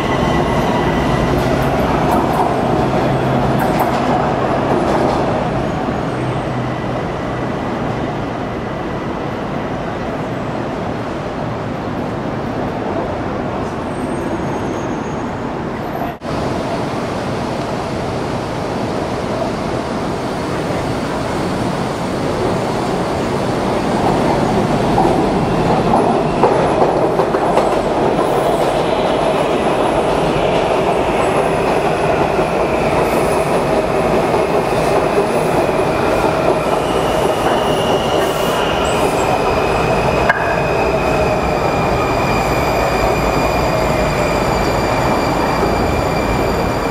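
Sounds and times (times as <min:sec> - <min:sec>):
train rumbling: 0:00.0 - 0:14.6, 0:15.3 - 0:46.9
train wheels squealing: 0:13.9 - 0:16.1, 0:36.3 - 0:46.9.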